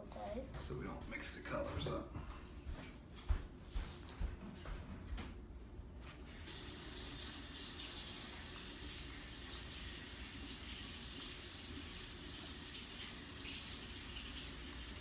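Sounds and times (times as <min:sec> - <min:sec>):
tap water running: 0:06.3 - 0:15.0.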